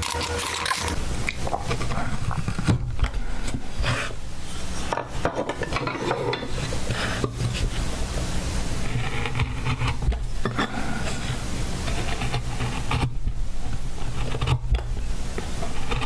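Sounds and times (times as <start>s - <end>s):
chisel scraping wood: 8.8s - 13.2s, 13.9s - 16.0s.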